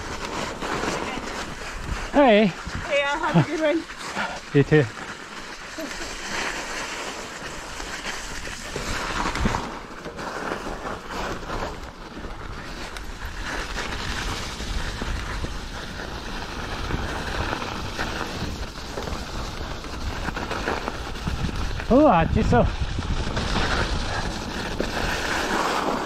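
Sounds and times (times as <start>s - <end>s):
bike rattling over rough ground: 0.0s - 26.0s
wind buffeting microphone: 13.1s - 26.0s.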